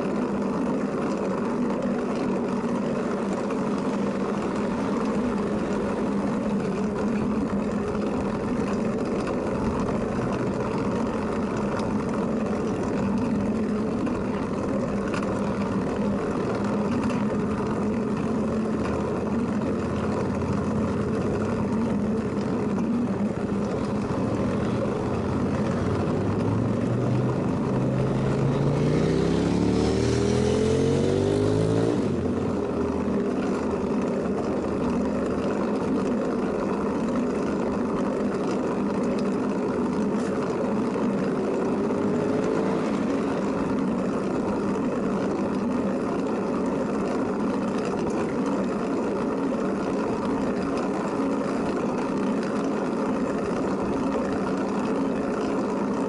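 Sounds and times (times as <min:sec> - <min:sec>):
road and wind rumble: 0:00.0 - 0:56.0
vehicle engine revving: 0:15.8 - 0:34.0, 0:41.5 - 0:44.7.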